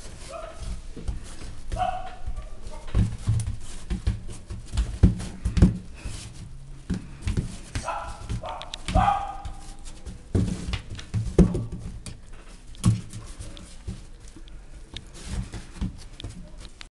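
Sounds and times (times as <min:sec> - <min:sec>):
dull thumps on mat: 0:02.9 - 0:06.3, 0:06.9 - 0:12.0.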